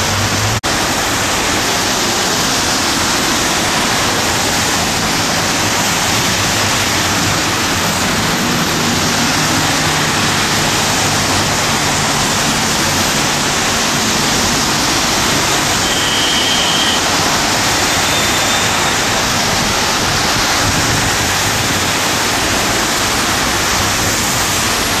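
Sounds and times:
tyres hissing on wet road: 0:00.0 - 0:25.0
vehicle engine hum: 0:00.0 - 0:25.0
brief high tone: 0:15.8 - 0:17.0, 0:17.9 - 0:19.0.

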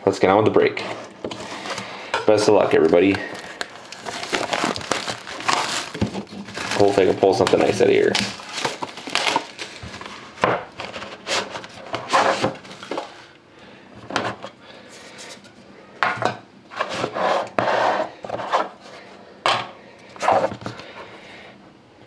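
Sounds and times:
cardboard boxes scraping on wood: 0:10.9 - 0:12.6.

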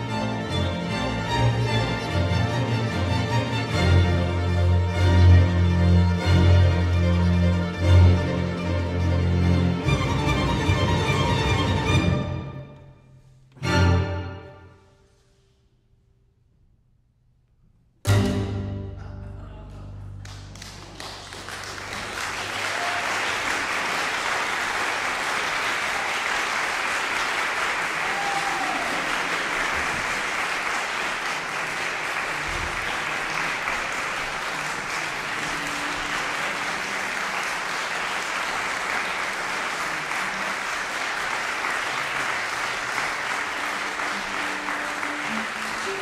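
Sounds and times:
audience applauding: 0:20.2 - 0:46.0.

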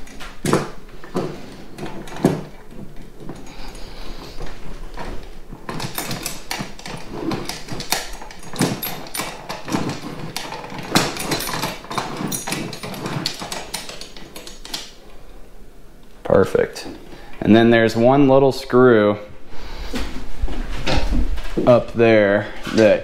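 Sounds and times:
mount parts clicking and scraping: 0:00.0 - 0:15.2.

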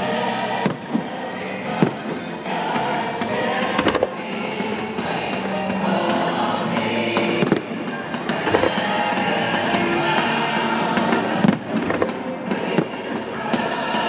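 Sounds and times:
steady music: 0:00.0 - 0:14.0
fireworks bangs and pops: 0:00.6 - 0:01.1, 0:01.7 - 0:14.0.

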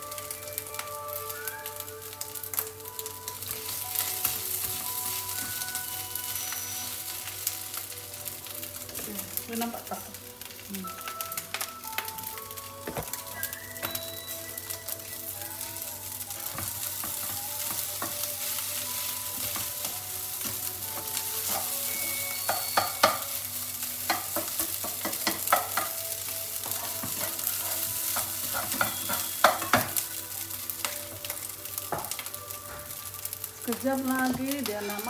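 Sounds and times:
rice sizzling in a wok: 0:00.0 - 0:35.0
spatula scraping a wok: 0:06.2 - 0:07.4, 0:26.6 - 0:29.8.

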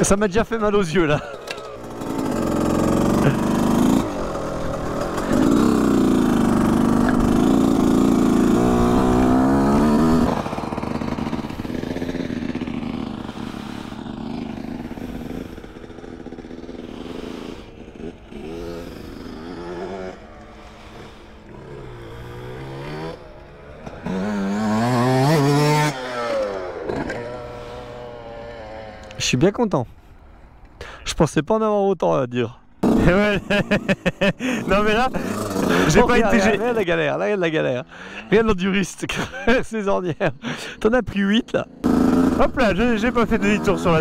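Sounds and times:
motocross bike engine revving: 0:00.7 - 0:29.2, 0:32.8 - 0:40.8, 0:41.5 - 0:44.0.

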